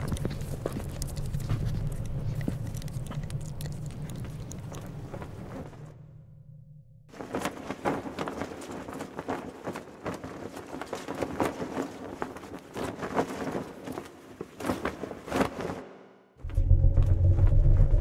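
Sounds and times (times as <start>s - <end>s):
loud low rumble: 16.4s - 18.0s.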